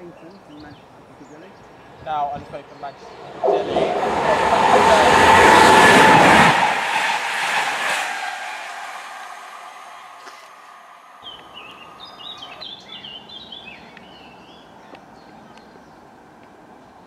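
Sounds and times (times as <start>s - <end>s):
outdoor background noise: 0.0s - 17.0s
songbird twittering: 11.2s - 16.0s.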